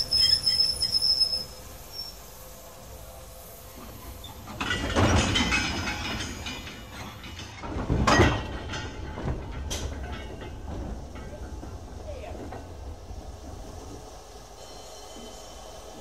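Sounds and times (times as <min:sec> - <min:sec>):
steam train rumbling on rails: 0:00.0 - 0:16.0.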